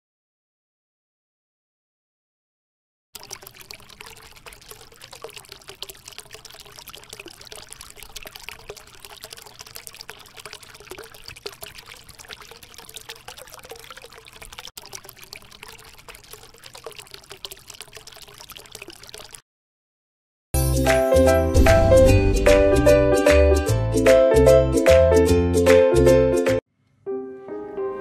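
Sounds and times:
fountain water splashing into pool: 3.2s - 19.4s.

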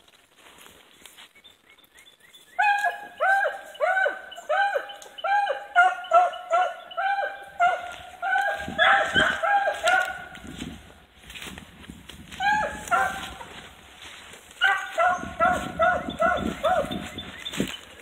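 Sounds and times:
rustling of brush: 0.0s - 3.9s, 7.5s - 18.0s
hounds baying: 2.6s - 10.8s, 12.3s - 13.8s, 14.6s - 18.0s.

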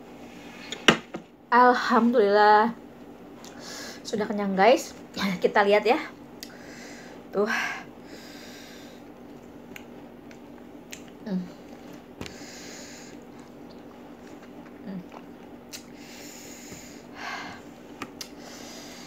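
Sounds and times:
person humming low: 11.2s - 11.6s.

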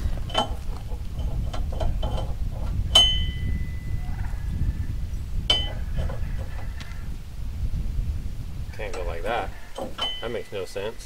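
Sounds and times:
steel parts clinking: 0.0s - 4.0s, 8.9s - 11.0s.

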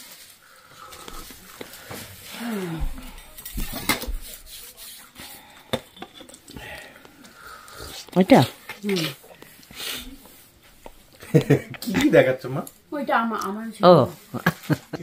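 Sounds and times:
crockery and cutlery clinking: 2.8s - 4.7s.

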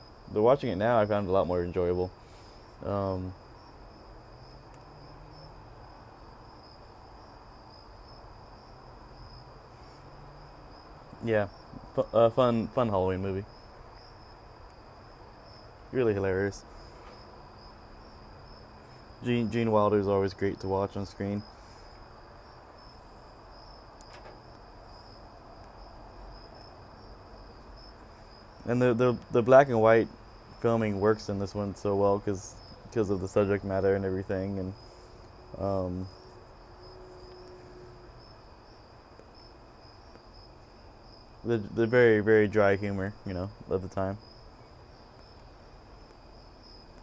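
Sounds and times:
crickets trilling: 0.0s - 47.0s
man speaking: 0.3s - 2.1s, 2.8s - 3.4s, 11.2s - 13.5s, 15.9s - 16.6s, 19.2s - 21.4s, 28.7s - 34.8s, 35.6s - 36.1s, 41.5s - 44.2s.

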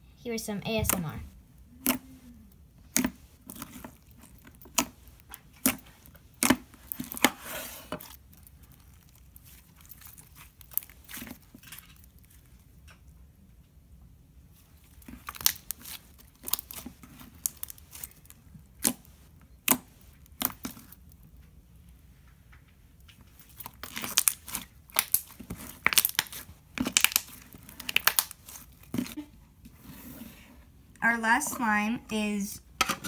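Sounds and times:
slime clicking and popping: 4.5s - 7.3s, 23.6s - 29.2s.

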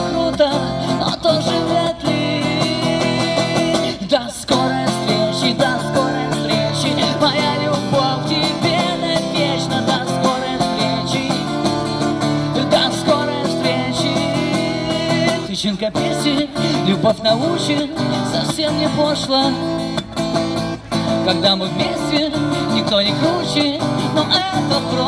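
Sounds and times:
person singing: 0.0s - 19.8s
acoustic guitar strumming: 0.0s - 25.0s.

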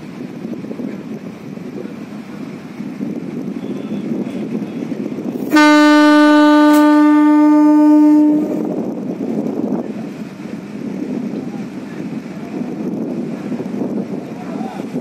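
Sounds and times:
wind on microphone: 0.0s - 15.0s
boat horn blast: 3.6s - 9.0s
boat motor droning: 3.6s - 9.3s.

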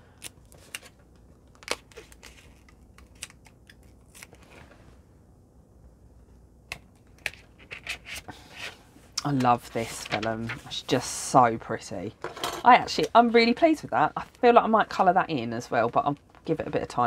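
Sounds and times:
paper rustling and tapping: 9.3s - 10.7s.

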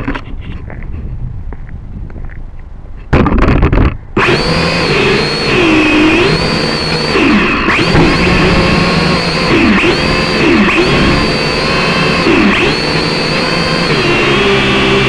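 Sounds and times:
drone motors whining: 3.1s - 15.0s.

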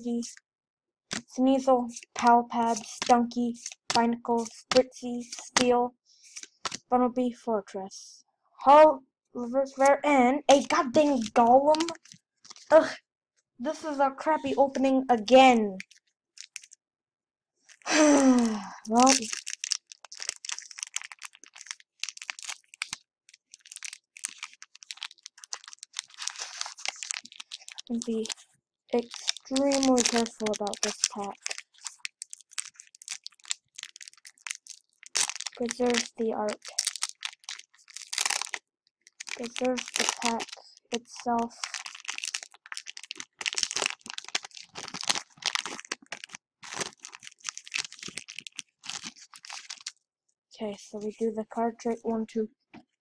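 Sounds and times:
foil wrapper crinkling: 2.0s - 4.0s, 10.6s - 12.7s, 15.8s - 16.8s, 17.7s - 28.4s, 29.0s - 50.0s.

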